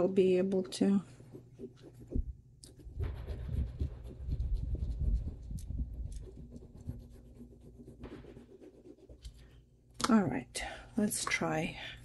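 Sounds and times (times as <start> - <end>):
scratching and rubbing jewelry: 0.2 - 9.8.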